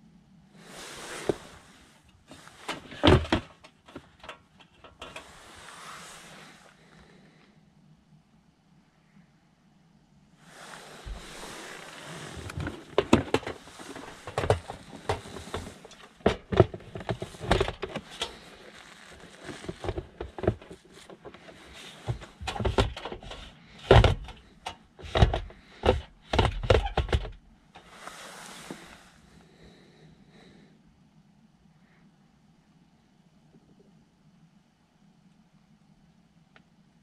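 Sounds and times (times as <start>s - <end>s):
rustling: 0.6s - 7.6s, 10.4s - 30.0s
metal case knocking on plastic: 22.1s - 24.4s.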